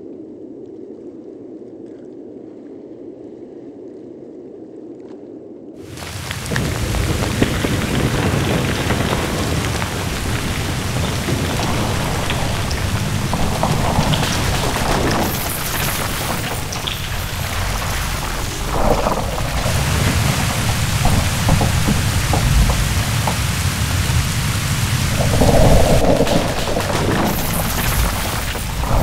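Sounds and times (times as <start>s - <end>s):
ice crackling: 5.8s - 29.0s
low ice rumble: 5.8s - 29.0s
churning water: 5.9s - 29.0s
falling ice splashing: 5.9s - 29.0s.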